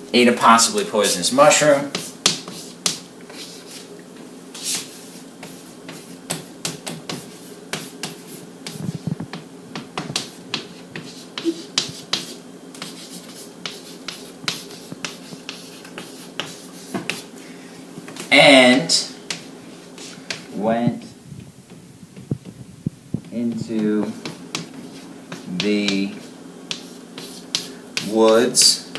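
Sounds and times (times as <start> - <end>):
chalk tapping and scratching: 1.8 - 3.9, 4.6 - 17.3, 19.3 - 20.5, 23.2 - 28.9.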